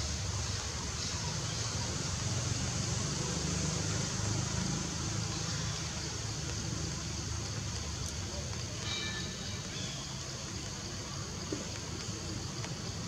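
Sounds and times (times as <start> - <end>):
high-pitched hiss: 0.0 - 13.0.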